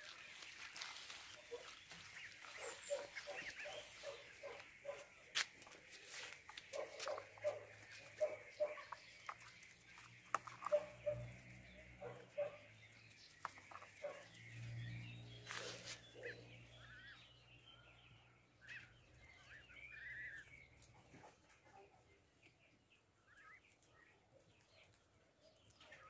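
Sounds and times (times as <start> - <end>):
rustle: 0.0 - 12.0, 12.8 - 16.5
goslings peeping: 0.0 - 17.7, 18.5 - 21.4, 23.2 - 23.8.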